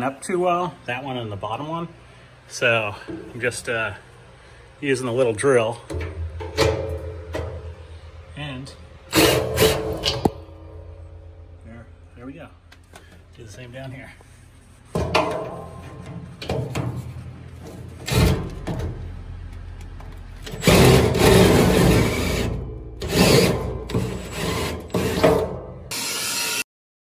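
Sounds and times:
hand drill drilling steel: 20.5s - 26.7s.

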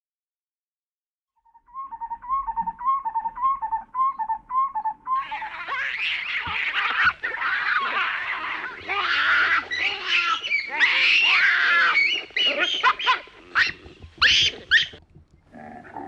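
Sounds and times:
repeated animal call: 1.5s - 16.0s
baboons screaming and chattering: 5.1s - 16.0s.

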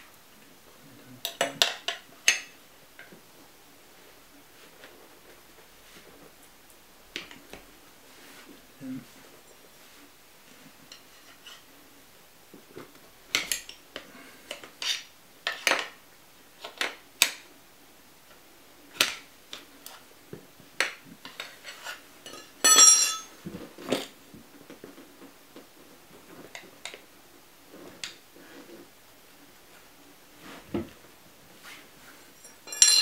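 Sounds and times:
ringing metal clatter: 22.6s - 23.3s, 32.4s - 33.0s.

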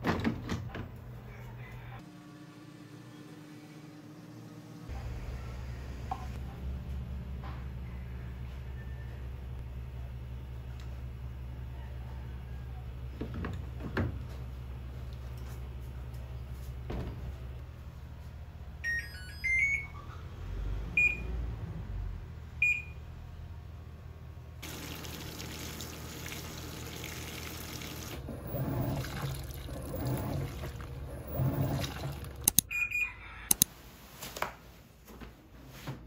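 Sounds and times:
water gushing into drum: 24.6s - 32.4s
sharp clicks: 32.4s - 32.7s, 33.5s - 33.7s.

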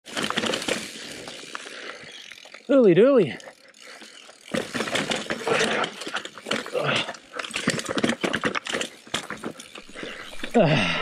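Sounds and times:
bike tyres rumbling over rock: 0.0s - 2.5s, 3.8s - 10.8s
bike clattering knocks: 4.4s - 9.6s.

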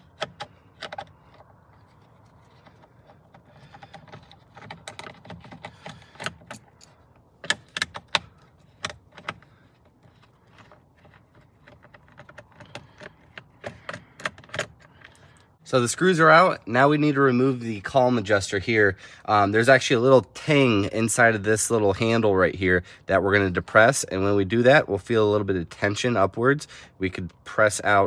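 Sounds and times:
screwdriver removing screws: 0.0s - 15.2s
plastic and metal clicks and rattles: 0.0s - 15.6s.

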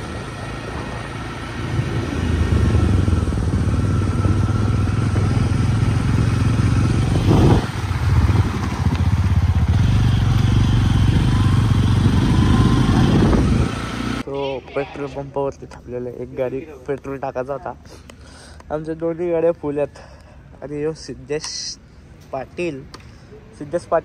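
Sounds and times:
motorcycle engine rumbling: 0.0s - 14.3s.

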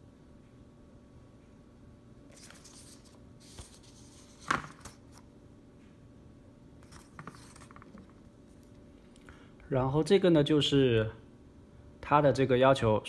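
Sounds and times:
paper rustling: 2.3s - 5.2s, 6.8s - 8.1s.

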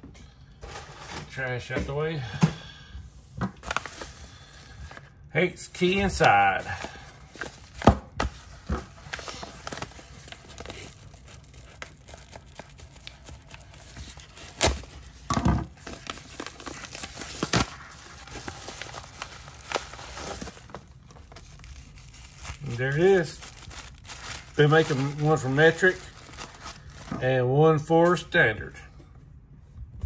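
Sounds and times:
paper rustling and crinkling: 3.5s - 5.1s, 5.8s - 27.2s.

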